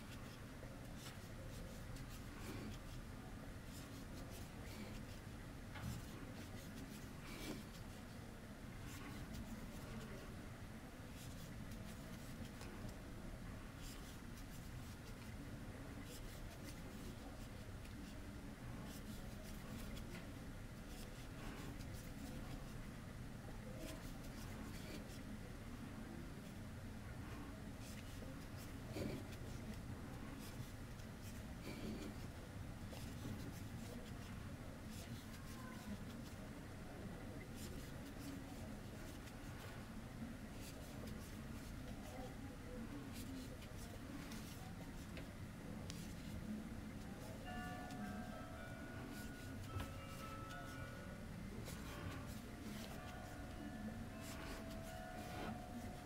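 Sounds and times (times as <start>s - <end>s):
crochet hook scratching: 0.0s - 3.0s, 8.9s - 10.3s, 11.2s - 12.9s, 13.8s - 15.3s, 16.0s - 18.2s, 18.8s - 20.2s, 23.8s - 25.2s, 27.8s - 29.8s, 32.9s - 34.3s, 37.6s - 39.8s, 40.6s - 42.2s, 51.6s - 53.6s, 54.2s - 56.0s
low room hum: 0.0s - 56.0s.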